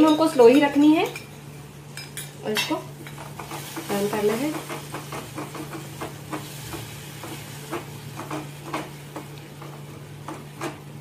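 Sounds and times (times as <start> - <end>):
sauce sizzling: 2.8 - 11.0.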